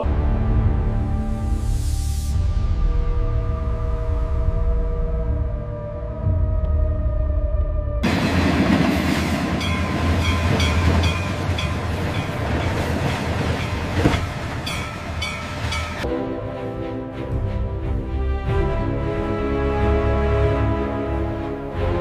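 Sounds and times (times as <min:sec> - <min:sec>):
freight train rumble and rattle: 0:08.0 - 0:16.1
wheels clacking over rail joints: 0:08.1 - 0:16.0.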